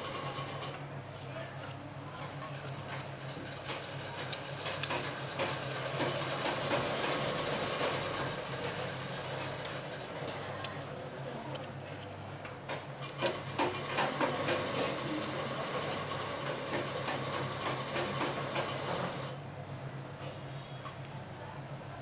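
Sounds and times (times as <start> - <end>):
shears snipping cloth: 1.2 - 3.1.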